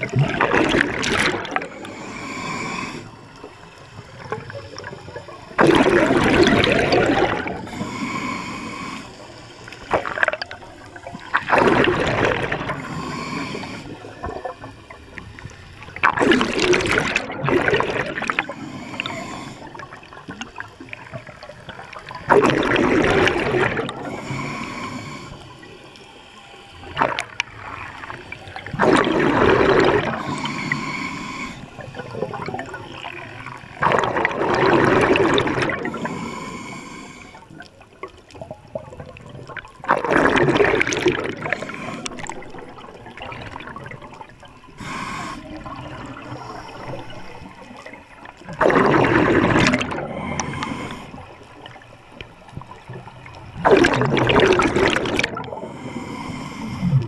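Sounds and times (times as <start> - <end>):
exhaled bubbles rushing: 0.0 - 1.8, 4.1 - 7.7, 9.7 - 12.8, 15.4 - 18.5, 19.7 - 24.1, 26.9 - 30.4, 31.8 - 36.1, 38.4 - 44.5, 45.4 - 55.8
regulator hiss: 1.6 - 5.6, 7.4 - 9.9, 12.6 - 16.6, 18.1 - 22.1, 23.3 - 33.8, 35.6 - 37.6, 41.4 - 43.1, 44.6 - 47.8, 50.1 - 52.2, 55.6 - 57.0.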